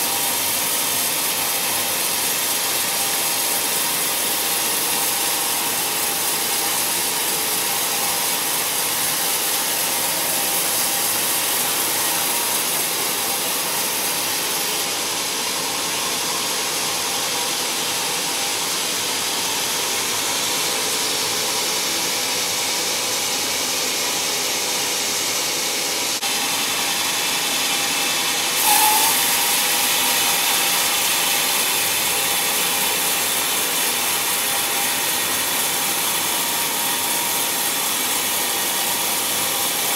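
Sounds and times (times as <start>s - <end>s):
band saw cutting timber: 0.0s - 39.9s
saw squeak: 28.4s - 38.7s.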